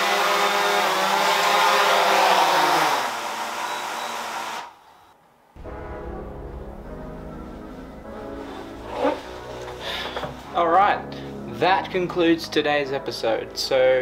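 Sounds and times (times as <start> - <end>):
drone hovering whine: 5.6 - 10.4
background music: 5.6 - 14.0.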